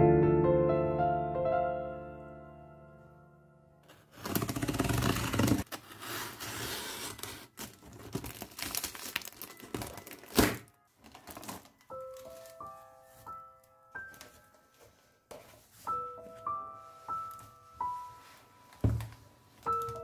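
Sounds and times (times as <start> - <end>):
cardboard and plastic rustling: 3.9 - 16.3, 18.4 - 20.0.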